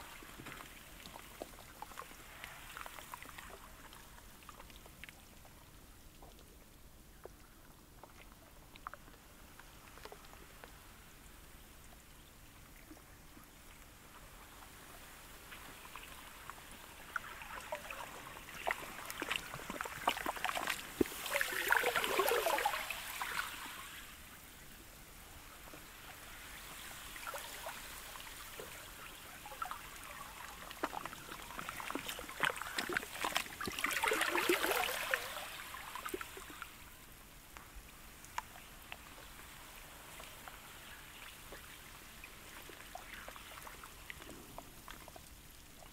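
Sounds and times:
slushy ice washing ashore: 17.5 - 24.1, 28.9 - 36.7.

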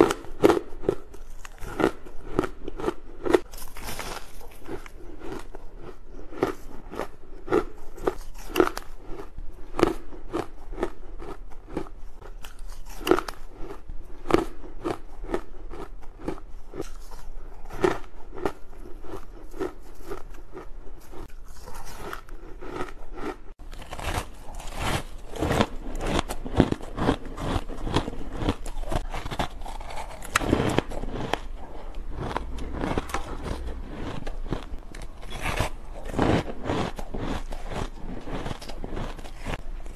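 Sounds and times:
chewing crunchy ice: 0.0 - 39.9.

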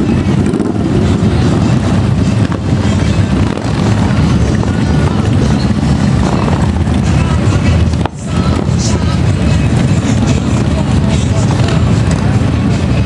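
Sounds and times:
motorcycle engines passing: 0.0 - 13.0.

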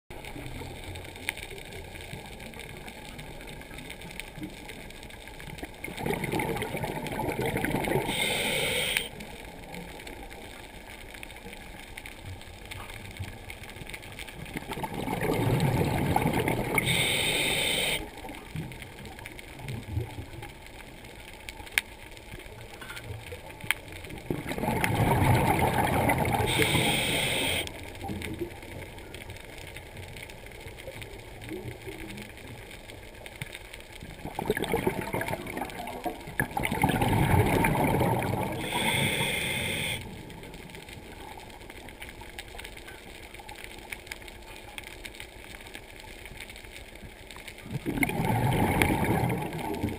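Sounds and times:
bubbling: 0.1 - 21.1, 22.2 - 44.4, 46.9 - 49.9
low underwater background: 0.1 - 49.9
diver breathing underwater: 7.7 - 9.2, 15.0 - 18.1, 24.6 - 27.8, 36.8 - 40.1
regulator hiss: 8.0 - 9.2, 16.8 - 18.1, 26.4 - 27.8, 38.6 - 40.2.

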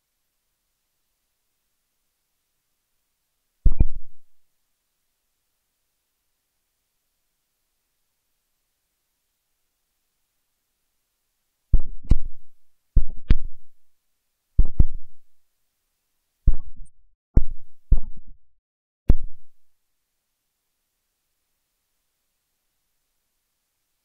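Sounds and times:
sharp low thumps: 3.7 - 4.2, 11.7 - 13.7, 14.6 - 15.2, 16.5 - 18.4, 19.1 - 19.5.

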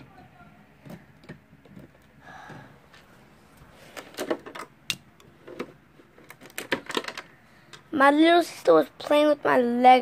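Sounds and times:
plastic toy bricks clicking: 4.1 - 7.3.

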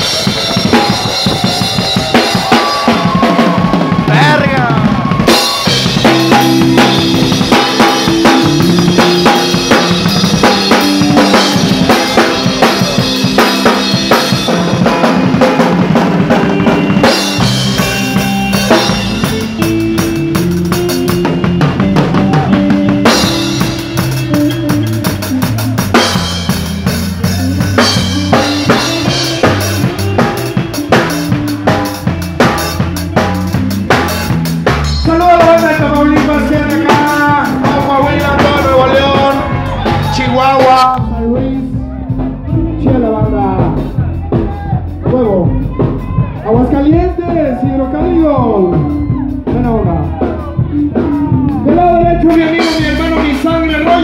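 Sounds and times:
drum kit: 0.0 - 54.0
live band playing: 0.0 - 54.0
wavering melody line: 5.3 - 15.4.

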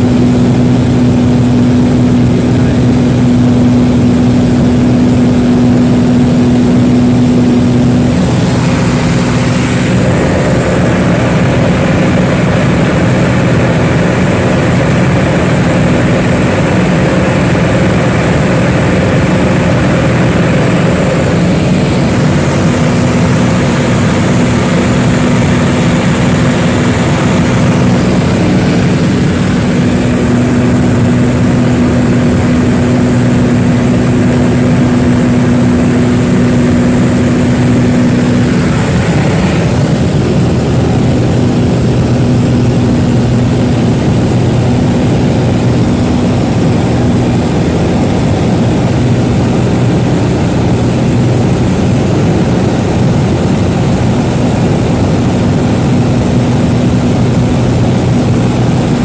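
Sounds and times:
propeller plane engine droning: 0.0 - 59.0
rushing air: 4.3 - 44.8.

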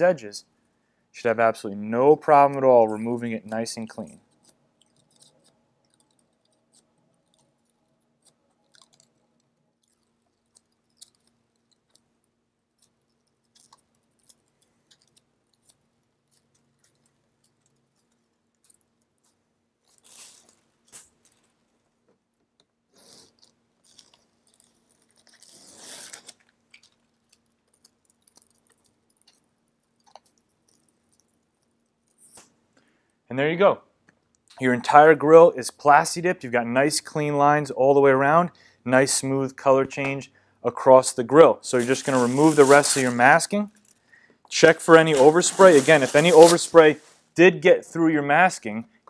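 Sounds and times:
rubber coating peeling and crackling: 2.2 - 32.6, 41.6 - 47.2
tape ripping: 19.9 - 21.4, 23.0 - 27.0, 41.7 - 43.5, 44.5 - 47.2.

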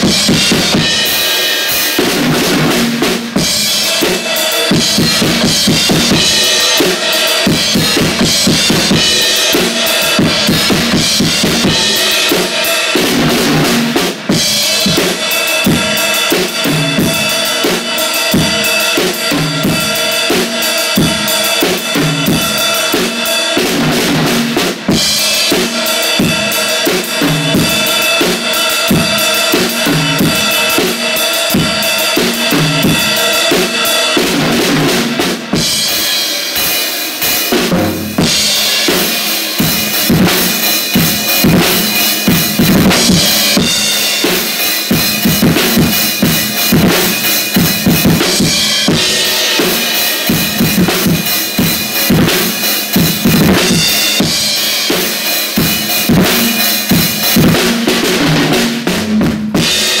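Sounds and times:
bass drum: 0.0 - 1.2, 2.0 - 17.4, 27.1 - 36.1, 37.5 - 54.6, 55.6 - 60.0
snare drum: 0.0 - 60.0
cymbals ringing: 3.4 - 23.6, 25.0 - 57.5.

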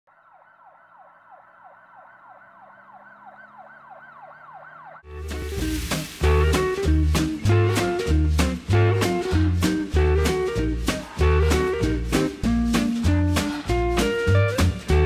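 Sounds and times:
siren yelping: 0.1 - 5.2
upbeat music with bass and drums: 5.1 - 15.0.

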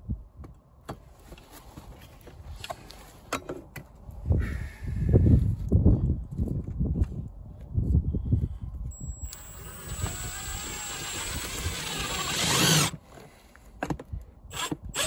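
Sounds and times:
impact driver driving screw: 9.2 - 13.0.

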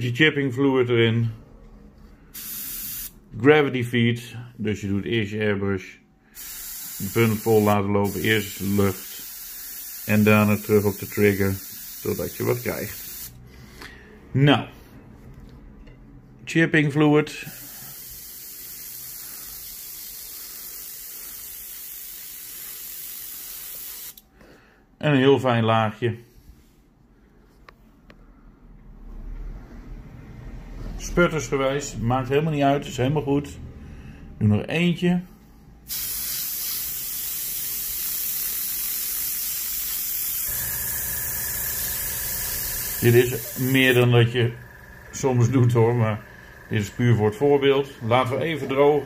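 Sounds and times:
airbrush hissing: 2.4 - 3.2, 6.4 - 13.4, 17.5 - 24.2, 35.9 - 47.8.

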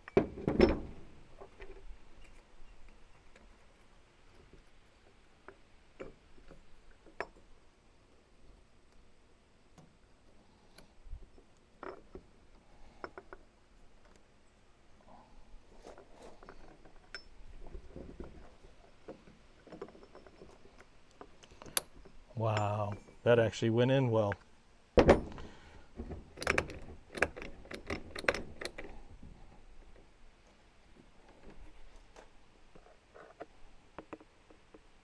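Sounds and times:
faint clicks of hand tools: 9.7 - 14.3, 19.0 - 23.1.

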